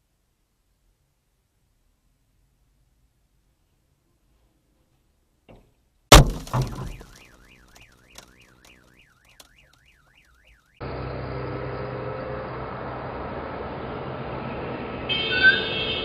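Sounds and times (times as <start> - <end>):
car crash with windshield shattering: 6.1 - 7.8
street noise: 6.1 - 16.0
car alarm wailing: 6.5 - 10.8.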